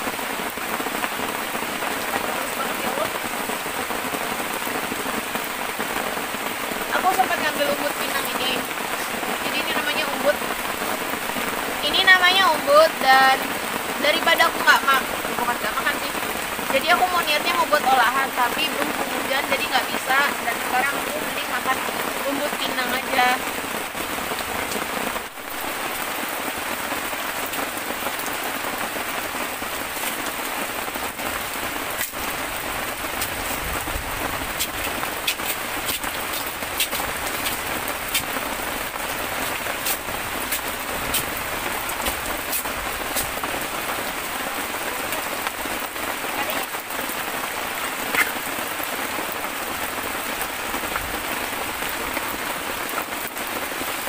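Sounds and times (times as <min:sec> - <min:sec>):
heavy rain falling: 0:00.0 - 0:54.0
sharp drip ticks: 0:34.6 - 0:38.4.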